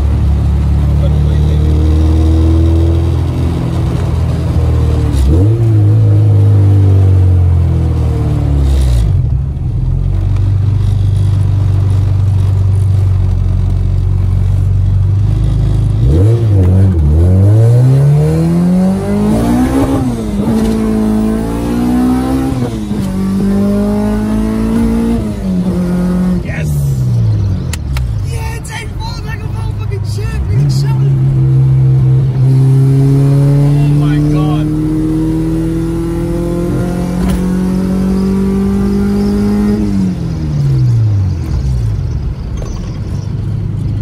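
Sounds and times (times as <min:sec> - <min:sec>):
car engine revving while driving: 0:00.0 - 0:28.3, 0:30.5 - 0:44.0.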